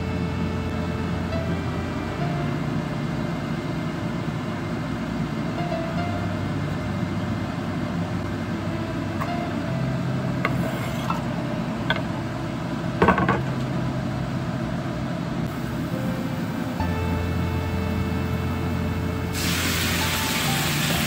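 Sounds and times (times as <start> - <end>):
steady hum: 0.0 - 21.0
knife scraping cutting board: 10.5 - 11.3.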